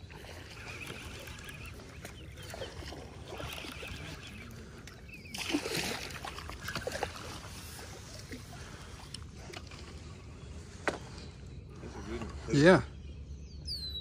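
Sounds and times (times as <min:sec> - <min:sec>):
fish splashing in water: 0:00.0 - 0:09.0.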